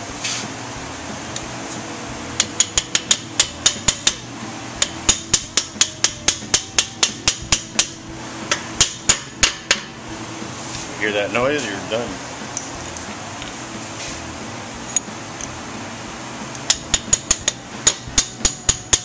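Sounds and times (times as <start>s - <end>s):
mallet tapping metal: 2.4s - 4.2s, 4.8s - 9.9s, 16.5s - 19.0s.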